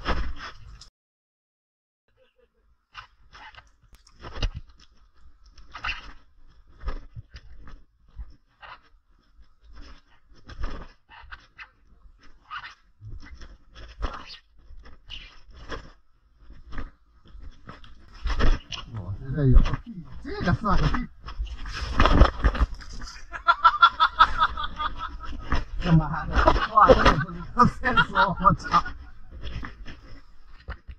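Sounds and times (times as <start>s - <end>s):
footsteps crunching on loose stones: 13.2s - 30.9s.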